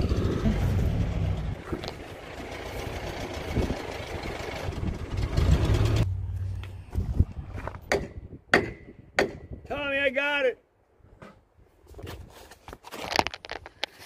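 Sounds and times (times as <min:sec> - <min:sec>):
engine idling: 0:00.0 - 0:07.0
sharp knocks: 0:07.9 - 0:09.6.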